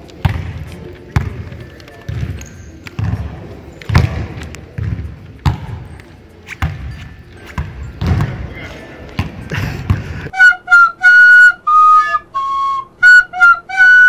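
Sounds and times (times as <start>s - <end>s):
basketball bouncing on hardwood floor: 0.2s - 5.8s, 6.6s - 7.0s, 7.6s - 8.5s.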